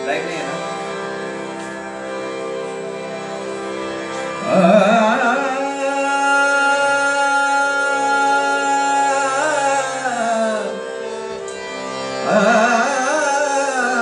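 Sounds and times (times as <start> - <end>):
harmonium sustained notes: 0.0 - 14.0
man singing: 4.4 - 11.0, 12.0 - 14.0.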